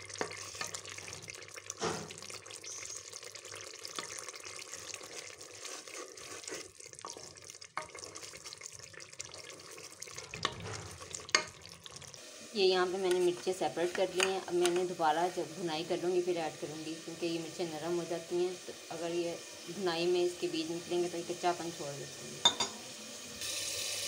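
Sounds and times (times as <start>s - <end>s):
spoon stirring and scraping: 0.0s - 12.2s
masala sizzling in oil: 0.0s - 24.0s
spoon knocking against pot: 22.4s - 22.8s.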